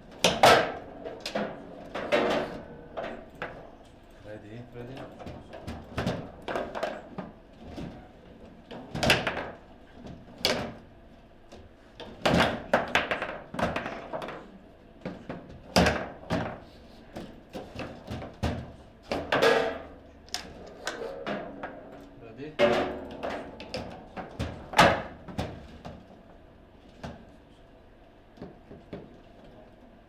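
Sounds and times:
foosball clacks and taps: 8.7s - 10.8s, 11.6s - 16.6s.

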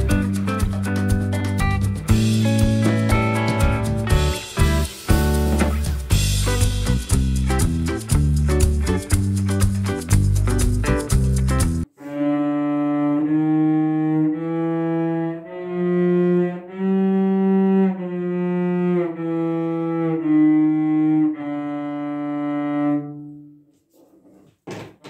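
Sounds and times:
cello sustained bowed notes: 12.0s - 23.6s.

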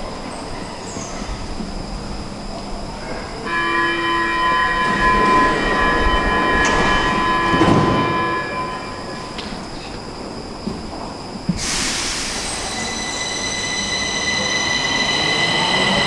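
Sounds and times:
train running noise: 0.0s - 16.0s
train door warning tones: 3.4s - 9.8s, 11.6s - 16.0s.

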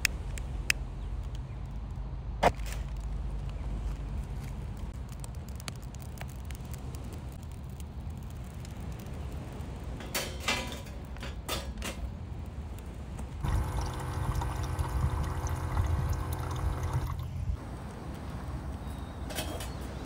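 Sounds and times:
water pouring into kettle: 13.4s - 17.3s
water pump running: 13.4s - 17.4s.

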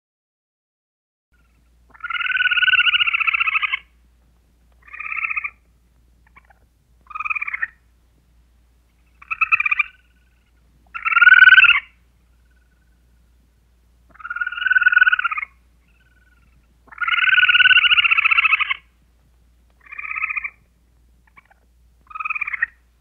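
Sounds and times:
squirrel chattering: 1.9s - 3.9s, 4.8s - 5.6s, 6.2s - 7.8s, 9.1s - 13.0s, 14.1s - 18.9s, 19.8s - 20.6s, 21.2s - 22.8s.

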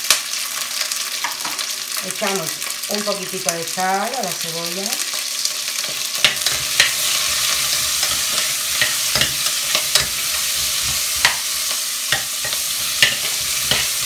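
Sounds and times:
onions sizzling in oil: 0.0s - 14.0s
metal spoon clinking and scraping pot: 5.8s - 14.0s.

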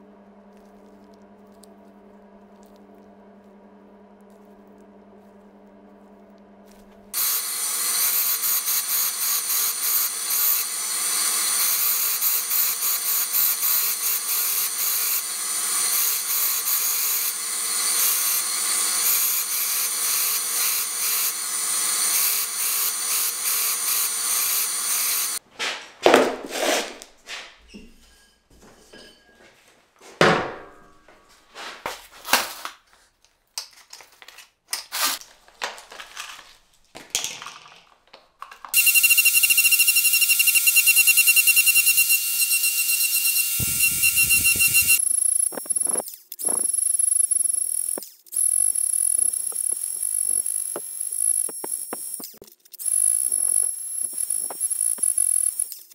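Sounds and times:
belt grinder grinding metal: 7.1s - 25.4s, 38.7s - 55.9s.

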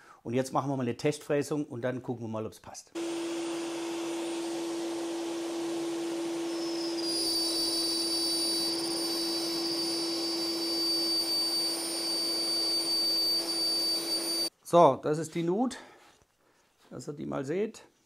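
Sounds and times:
router running: 3.0s - 14.5s
high whine: 6.4s - 14.5s.

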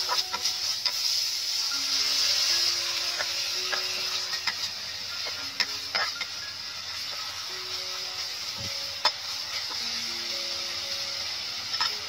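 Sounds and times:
metal spatula scraping a pan: 0.0s - 7.5s
faint background music: 0.0s - 12.0s
ingredients sizzling in oil: 0.0s - 12.0s.

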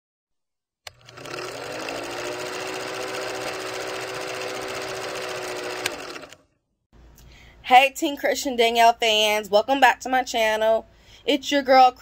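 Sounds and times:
film projector running: 0.9s - 6.5s.

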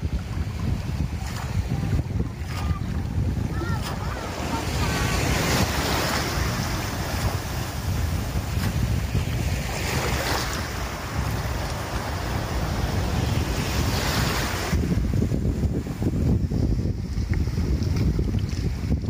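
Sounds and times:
surf washing: 0.0s - 19.0s
wind buffeting microphone: 0.0s - 19.0s
cast net dragged through water: 3.8s - 14.8s.

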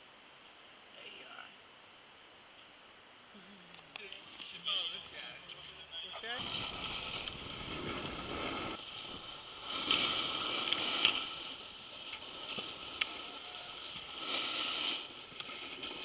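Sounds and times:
snowboard scraping over snow: 6.2s - 16.0s.

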